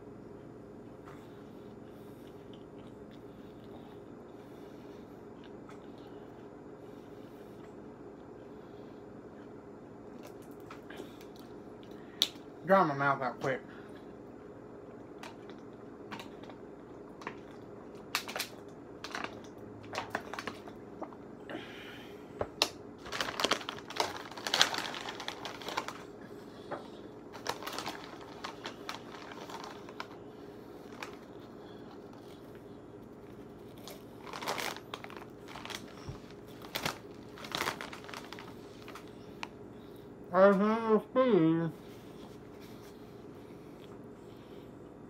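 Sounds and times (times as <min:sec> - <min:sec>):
chips crunching: 0:15.1 - 0:21.2, 0:22.5 - 0:39.6
plastic snack bag crinkling: 0:17.2 - 0:21.1, 0:22.6 - 0:26.2, 0:27.2 - 0:39.6.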